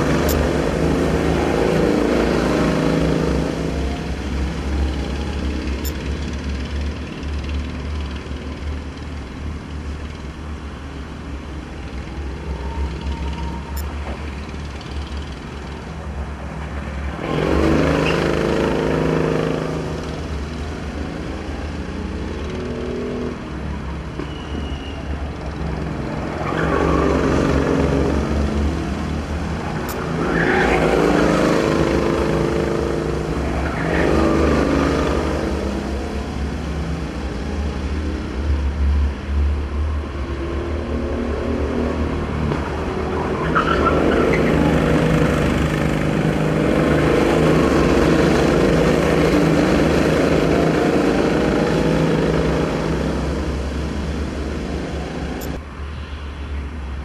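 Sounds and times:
distant kart engines: 0.0s - 57.0s
go-karts driving past: 16.6s - 21.6s, 25.9s - 36.8s, 42.3s - 55.6s.

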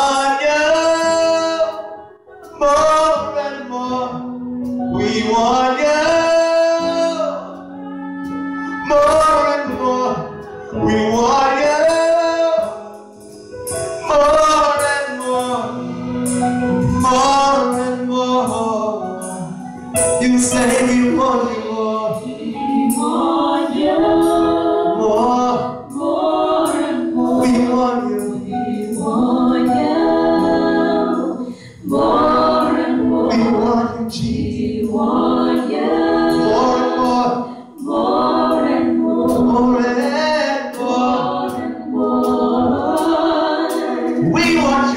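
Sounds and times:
women singing gospel together: 4.2s - 12.9s, 20.5s - 44.9s.

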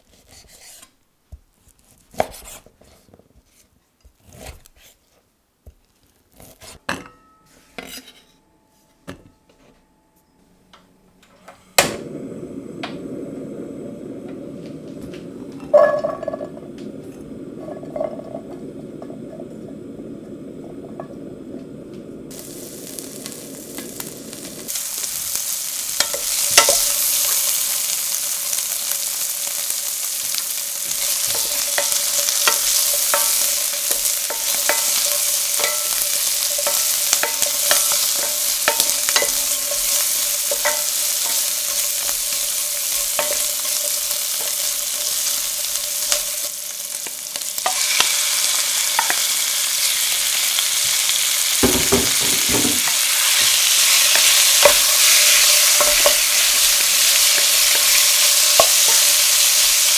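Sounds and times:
meat sizzling in a pan: 11.8s - 59.9s
wooden spoon stirring: 30.2s - 47.9s, 51.9s - 59.6s.

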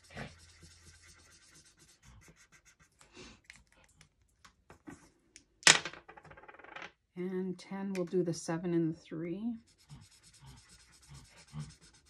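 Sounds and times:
marker scratching on paper: 0.0s - 3.0s, 9.6s - 12.0s
dice clattering on a table: 5.6s - 6.9s.

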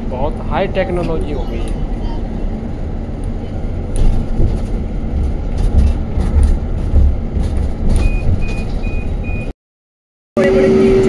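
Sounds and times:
vehicle rumbling on road: 0.0s - 9.5s, 10.4s - 11.0s.

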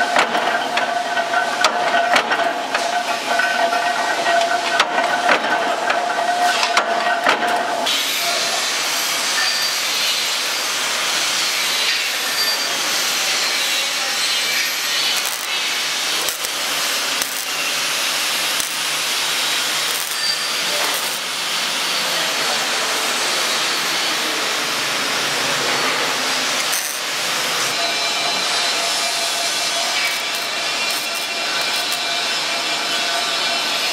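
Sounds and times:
welding arc hissing: 7.8s - 33.9s.

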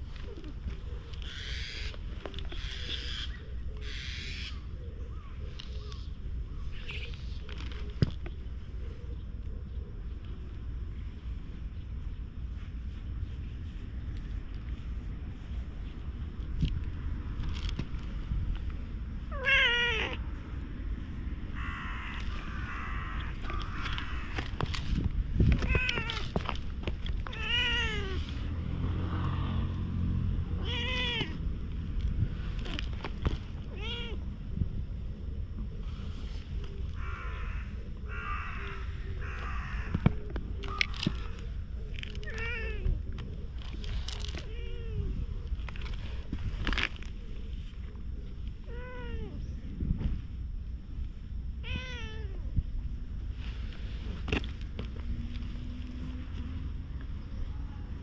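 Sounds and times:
cat meowing: 19.3s - 20.2s, 27.3s - 28.2s, 30.6s - 31.4s, 33.8s - 34.2s, 51.6s - 52.5s.

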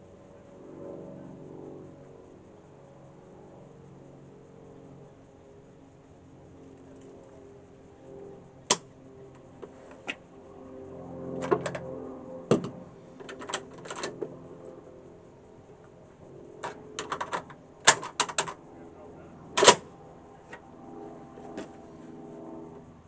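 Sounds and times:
metallic rifle clicks and clacks: 19.6s - 19.8s.

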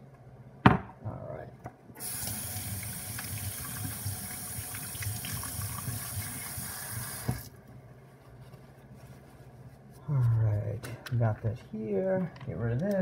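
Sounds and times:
faucet running water into a sink: 2.0s - 7.5s.

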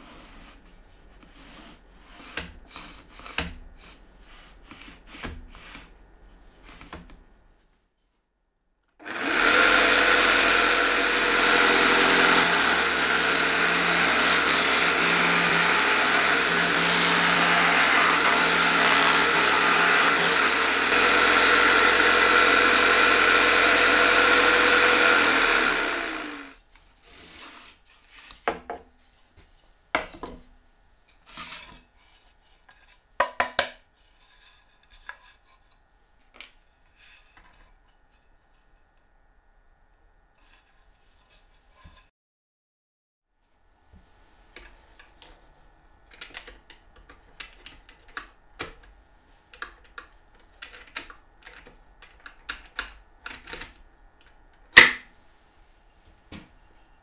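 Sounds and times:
jigsaw cutting plywood: 9.0s - 26.6s.

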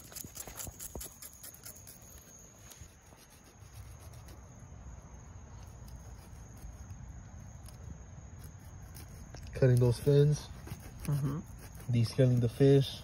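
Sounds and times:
fish scaler scraping scales: 0.0s - 4.5s.

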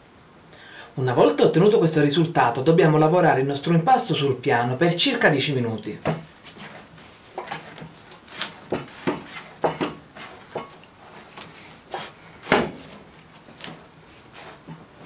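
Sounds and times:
dough thumping on wooden board: 7.4s - 10.7s, 12.4s - 13.0s.

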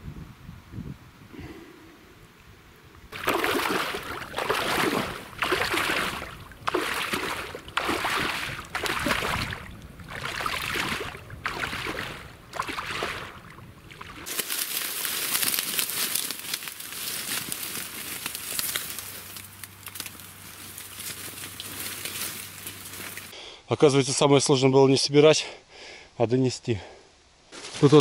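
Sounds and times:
sack dragged through water: 3.1s - 16.3s
wading steps splashing in water: 3.1s - 18.8s
dry reeds rustling underfoot: 3.1s - 23.3s, 27.5s - 28.0s.

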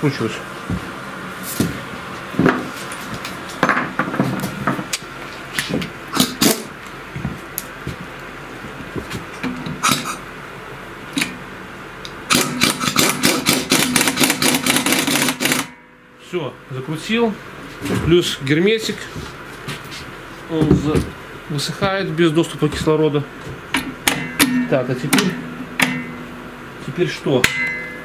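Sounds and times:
impact wrench hammering: 12.3s - 16.0s, 23.7s - 26.4s, 27.4s - 28.0s.

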